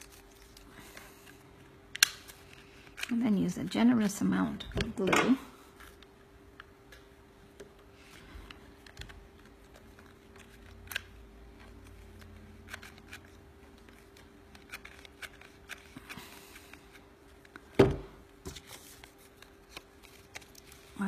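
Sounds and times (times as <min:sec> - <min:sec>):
faint steady hum: 0:00.0 - 0:21.0
paper rustling: 0:18.4 - 0:21.0.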